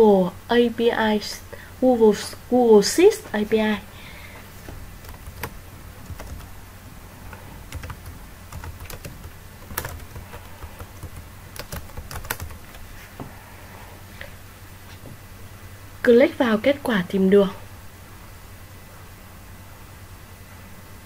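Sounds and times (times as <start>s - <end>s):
faint low hum: 0.0s - 21.0s
keyboard keystrokes clicking: 5.0s - 6.5s, 7.3s - 12.8s.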